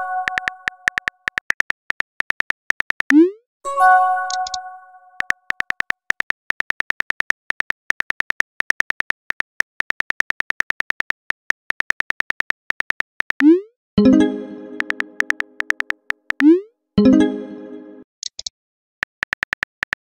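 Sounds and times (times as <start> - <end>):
phone keyboard typing clicks: 0.2 - 3.2, 4.3 - 4.6, 5.2 - 13.5, 14.7 - 16.5, 18.2 - 20.0
bright multi-tone chime: 3.7 - 4.9, 14.0 - 15.6, 17.0 - 18.0.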